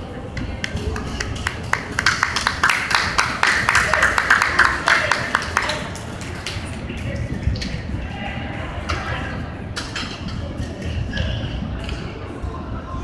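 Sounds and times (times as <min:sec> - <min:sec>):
people clapping: 0:00.3 - 0:07.8.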